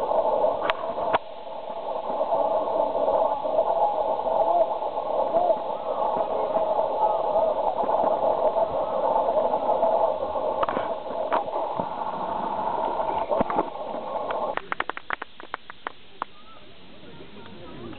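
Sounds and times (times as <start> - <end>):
chatter of many voices: 3.6 - 11.8, 15.9 - 17.9.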